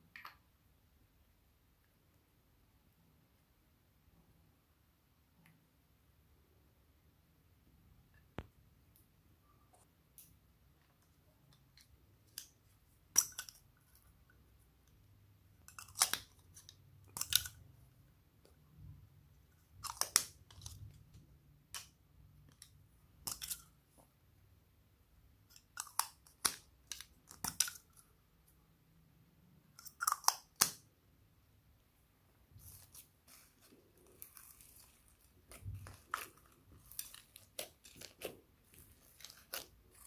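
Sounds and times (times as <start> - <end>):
slime squishing and crinkling: 32.5 - 40.0.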